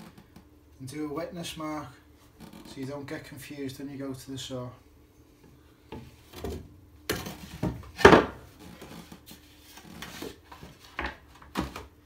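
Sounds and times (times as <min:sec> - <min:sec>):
boards knocking and scraping: 0:06.0 - 0:08.5.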